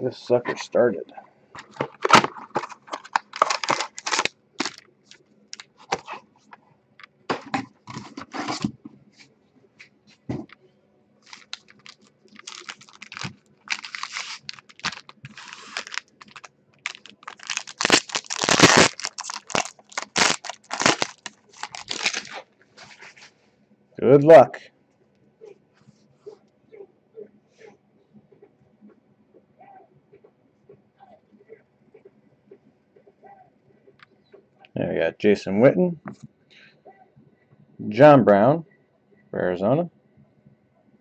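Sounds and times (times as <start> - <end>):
foil packs rustling: 1.6 - 4.8, 11.2 - 23.3
foil pack tearing open: 2.0 - 4.8, 11.3 - 22.4.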